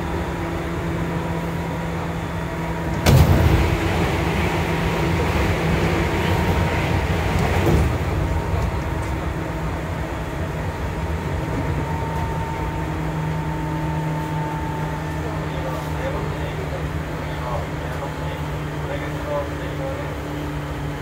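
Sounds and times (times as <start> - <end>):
train wheels on rail: 2.8 - 17.2.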